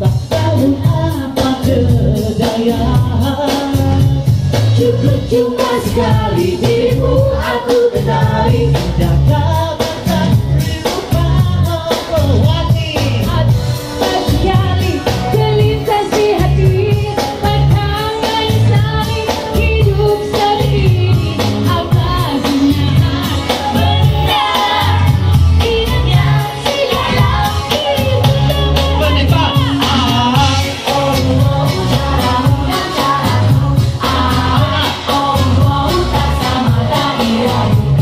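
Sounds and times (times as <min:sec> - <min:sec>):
pop backing track with steady beat: 0:00.0 - 0:38.0
woman singing into a microphone: 0:00.0 - 0:38.0.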